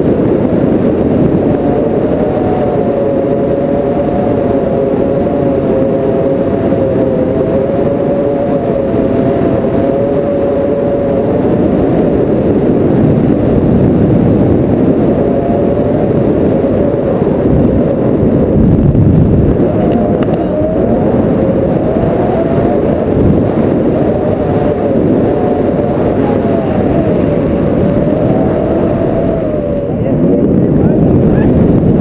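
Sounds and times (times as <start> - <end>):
wind rumbling on microphone: 0.0 - 32.0
faint wavering whistle: 1.4 - 12.4, 19.5 - 30.1.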